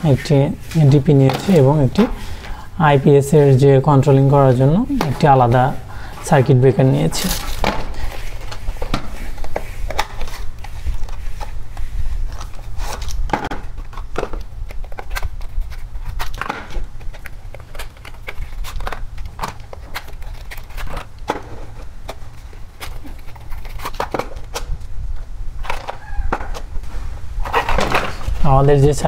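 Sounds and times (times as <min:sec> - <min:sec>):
steady low hum: 0:00.0 - 0:29.0
cardboard boxes being opened: 0:06.8 - 0:28.7.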